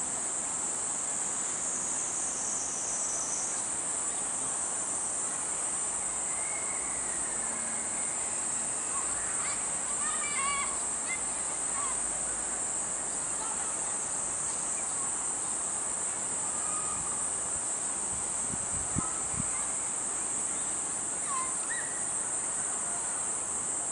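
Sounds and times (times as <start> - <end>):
insects chorus: 0.0 - 23.9
faint chirps: 5.3 - 15.8, 16.4 - 17.4, 18.9 - 23.2.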